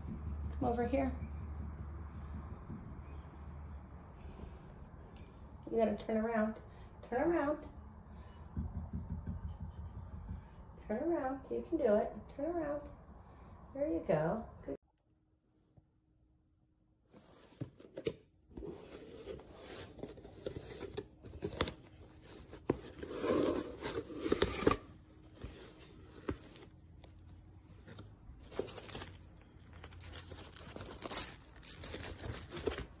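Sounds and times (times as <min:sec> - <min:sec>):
cardboard tearing and scraping: 0:22.4 - 0:24.9, 0:27.8 - 0:33.0
plastic wrapping crinkling: 0:26.3 - 0:33.0.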